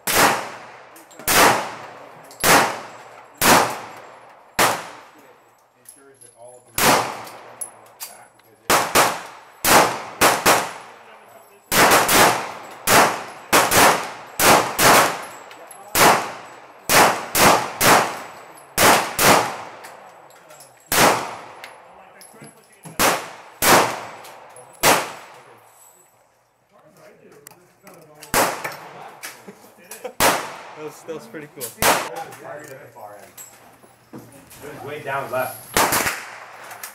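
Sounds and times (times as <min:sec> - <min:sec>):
pistol shots with echo: 0:00.0 - 0:05.2, 0:06.8 - 0:07.8, 0:08.7 - 0:11.1, 0:11.7 - 0:19.9, 0:20.9 - 0:21.8, 0:23.0 - 0:25.6, 0:28.3 - 0:28.9, 0:30.2 - 0:30.8, 0:31.8 - 0:32.1, 0:35.8 - 0:36.6.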